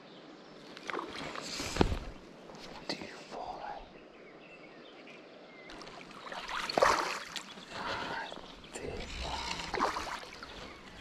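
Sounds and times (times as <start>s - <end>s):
water splashing: 5.7s - 11.0s.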